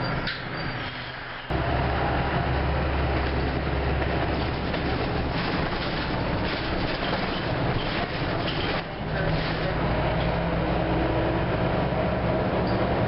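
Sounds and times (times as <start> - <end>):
bus engine droning: 0.0 - 13.0
road and running noise: 0.0 - 13.0.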